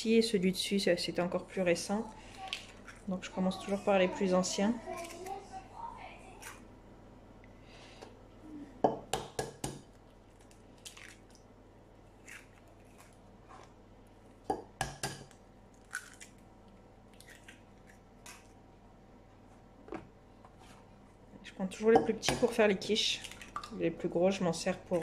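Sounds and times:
eggs cracking on glass bowl: 14.4s - 16.5s, 21.9s - 23.8s.

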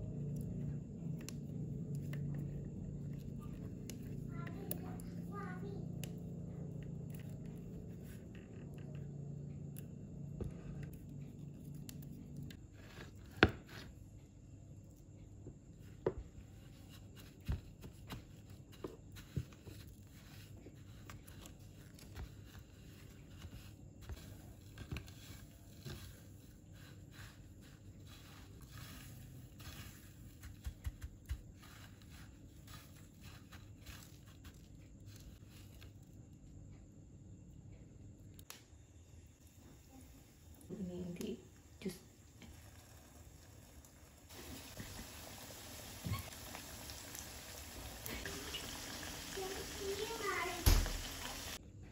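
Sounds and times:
low hum: 0.0s - 12.6s
bread crumbs crackling and scraping: 0.0s - 14.0s, 15.8s - 36.3s, 39.4s - 51.6s.

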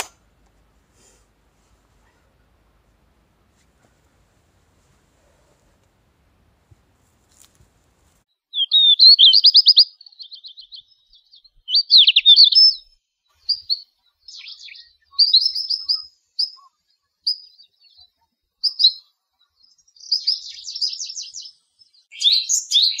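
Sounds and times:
songbird singing: 8.4s - 23.0s.

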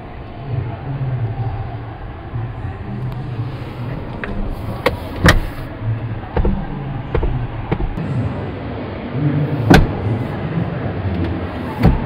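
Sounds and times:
seat latch clicks and clunks: 4.2s - 5.6s.

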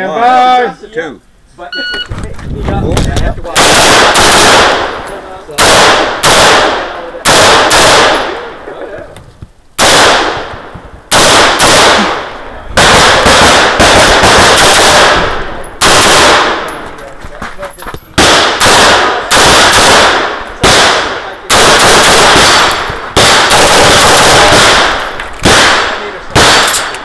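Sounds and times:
rifle shots with echo: 3.5s - 8.6s, 9.8s - 16.9s, 18.2s - 27.0s.

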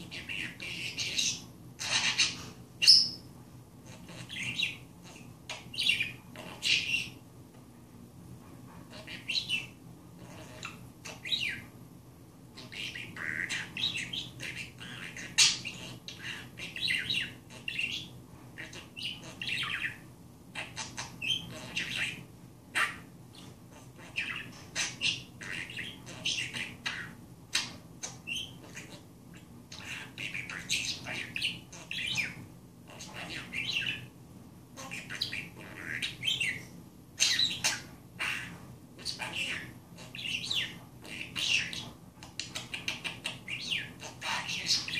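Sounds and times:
budgerigar chattering: 23.8s - 29.0s, 37.2s - 44.9s.

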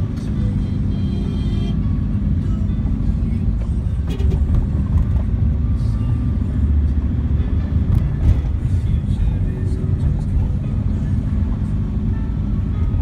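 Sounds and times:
heavy road traffic rumble: 0.0s - 13.0s.

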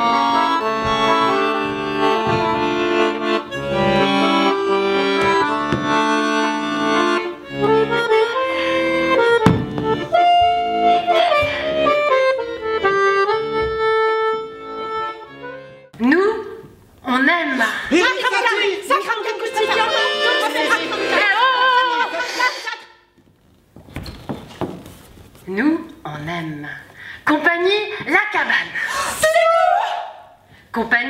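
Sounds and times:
piano accordion playing a tune: 0.0s - 15.9s, 18.1s - 22.8s.

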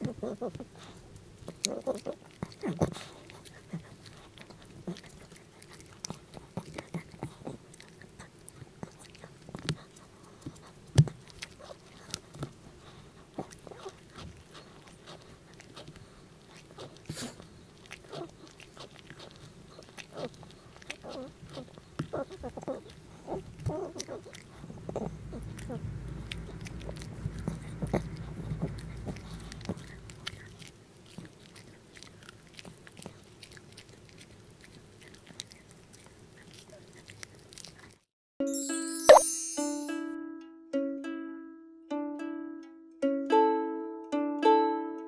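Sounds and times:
dog crunching bone: 0.0s - 38.0s
low rumble: 24.5s - 30.5s.

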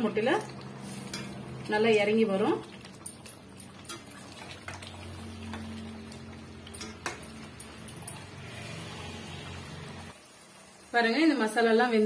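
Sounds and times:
spoon tapping metal pot: 6.7s - 8.2s.

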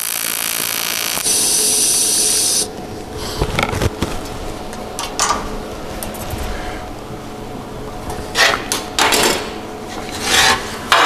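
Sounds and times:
welding arc buzzing hiss: 0.0s - 2.8s.

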